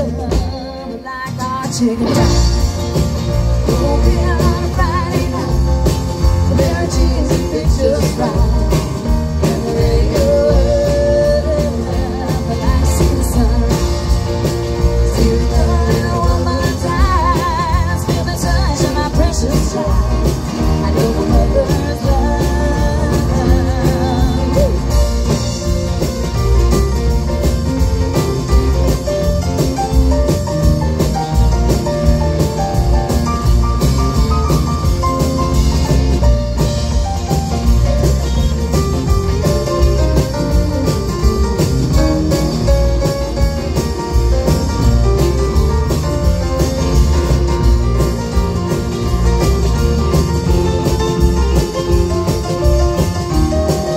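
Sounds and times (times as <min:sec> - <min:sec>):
drum kit beat: 0:00.0 - 0:53.9
electric guitar melody: 0:00.0 - 0:53.9.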